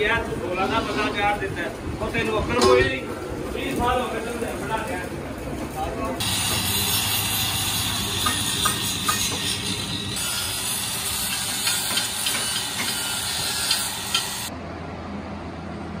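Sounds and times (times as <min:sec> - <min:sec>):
grinder disc hissing on metal: 0:06.2 - 0:14.5.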